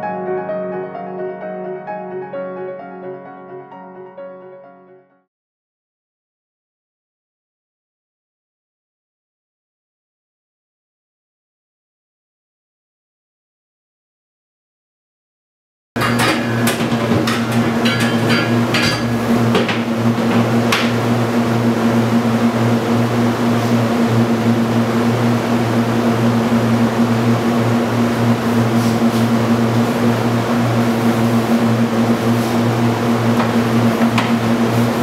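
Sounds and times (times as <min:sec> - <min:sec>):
loud low machine hum: 0:16.0 - 0:35.0.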